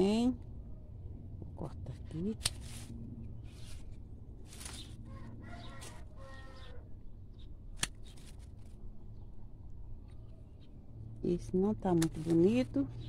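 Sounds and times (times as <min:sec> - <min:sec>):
rustling leaves and stems: 0:01.5 - 0:09.3, 0:11.2 - 0:13.0
pruning shears snipping: 0:02.0 - 0:02.9, 0:04.4 - 0:05.0, 0:07.7 - 0:08.7, 0:11.7 - 0:12.8.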